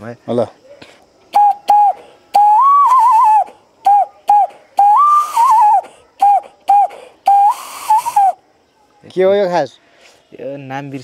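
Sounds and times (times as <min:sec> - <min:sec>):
hand whistle bird call: 0:01.3 - 0:08.4.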